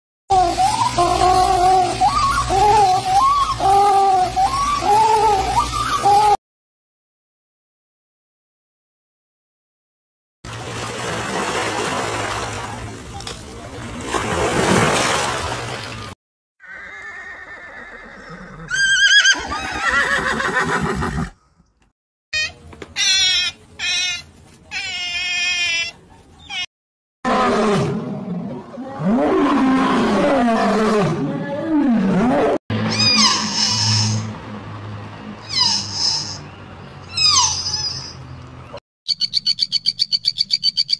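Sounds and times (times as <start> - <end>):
otters chirping squeaks: 32.9 - 34.2, 35.5 - 36.4, 37.1 - 38.2, 39.1 - 40.9
low sliding animal calls: 32.9 - 34.3.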